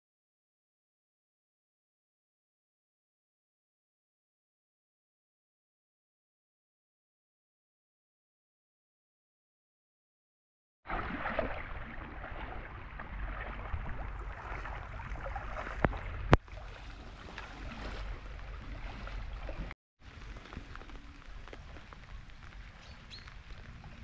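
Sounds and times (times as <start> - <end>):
water splashing around kayak: 10.9 - 24.0
light rain: 20.0 - 24.0.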